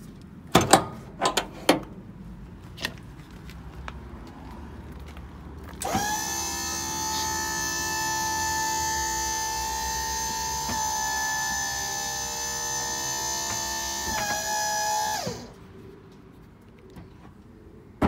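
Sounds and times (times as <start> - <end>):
hydraulic pump whining: 5.8 - 15.6.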